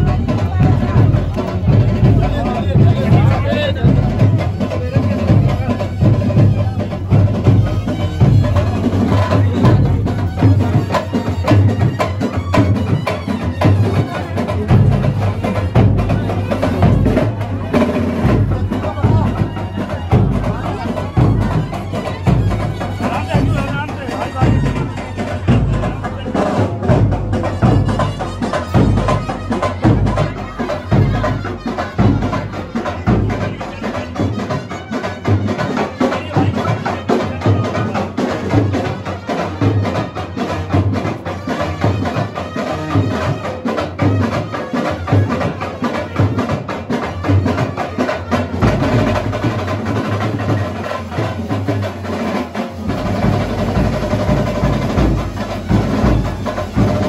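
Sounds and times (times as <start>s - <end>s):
deep bass drum: 0.0s - 13.0s, 14.6s - 33.6s
street band drums and percussion: 0.0s - 57.0s.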